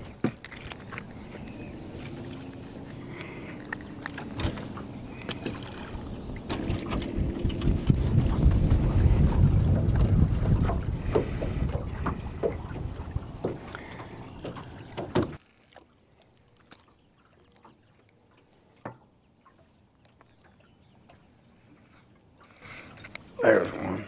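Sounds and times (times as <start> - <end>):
wind buffeting microphone: 0.0 - 15.4
water lapping against boat hull: 0.0 - 24.0.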